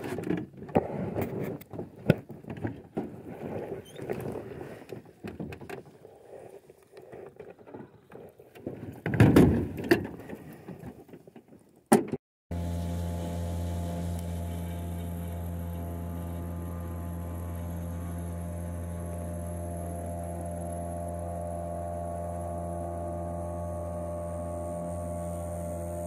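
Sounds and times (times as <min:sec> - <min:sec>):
water and hull noise: 0:00.8 - 0:09.0.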